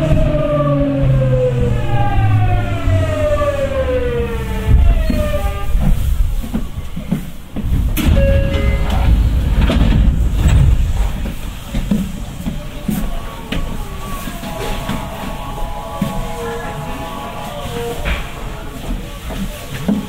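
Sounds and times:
wheel-on-rail rumble: 0:00.0 - 0:20.0
train inverter whine falling in pitch: 0:08.0 - 0:11.3
brief tone: 0:08.1 - 0:09.1.

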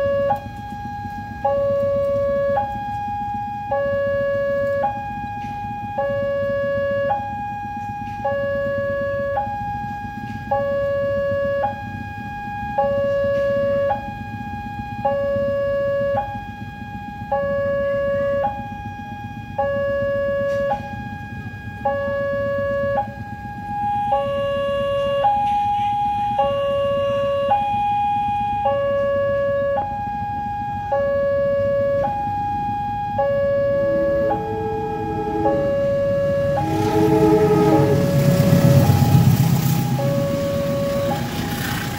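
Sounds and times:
level-crossing two-tone alarm: 0:00.0 - 0:41.3.

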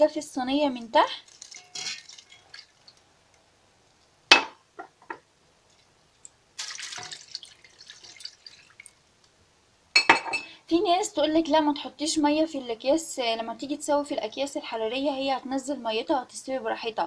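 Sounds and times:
water pouring into a metal pan: 0:01.2 - 0:03.0, 0:06.6 - 0:09.0.

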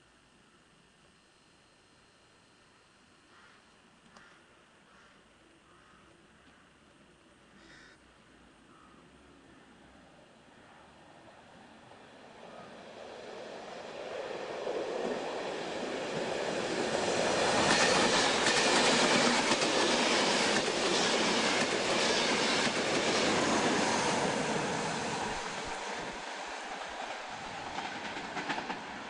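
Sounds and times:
train rushing past: 0:11.7 - 0:29.0.

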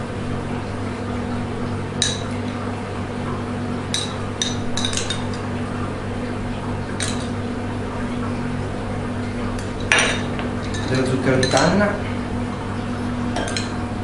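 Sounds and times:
steady low hum: 0:00.0 - 0:14.0
glassware clinking: 0:03.9 - 0:05.4, 0:09.8 - 0:11.8, 0:13.4 - 0:13.8.

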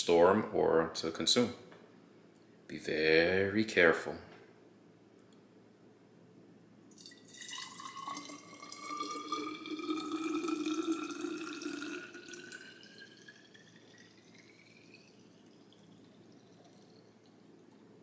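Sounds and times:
juice pouring into glass bottle: 0:06.9 - 0:18.0.

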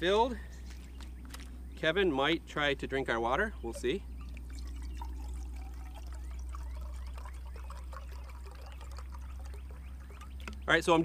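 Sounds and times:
water pouring into metal pot: 0:03.7 - 0:10.5.

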